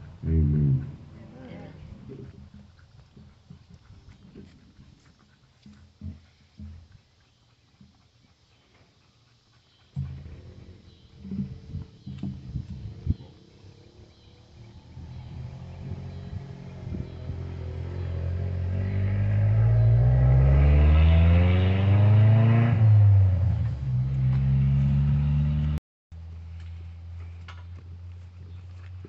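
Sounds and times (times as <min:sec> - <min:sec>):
vehicle engine revving: 0:00.0 - 0:01.2, 0:10.0 - 0:25.8.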